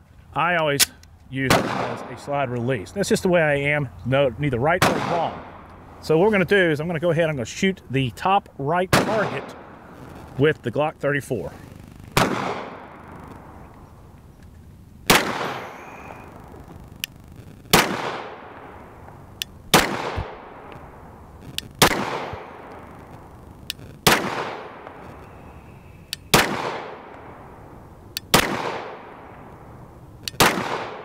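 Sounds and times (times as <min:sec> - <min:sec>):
pistol shots with echo: 0:01.4 - 0:02.2, 0:04.8 - 0:05.6, 0:08.9 - 0:09.8, 0:12.2 - 0:13.5, 0:15.1 - 0:16.4, 0:17.7 - 0:19.1, 0:19.7 - 0:21.1, 0:21.8 - 0:22.9, 0:24.0 - 0:25.6, 0:26.2 - 0:27.6, 0:28.3 - 0:29.5, 0:30.3 - 0:31.0.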